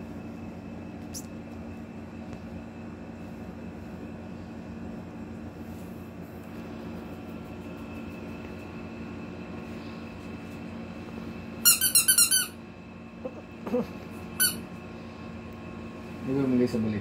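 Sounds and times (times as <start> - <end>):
rubber duck squeaking: 11.7 - 12.5.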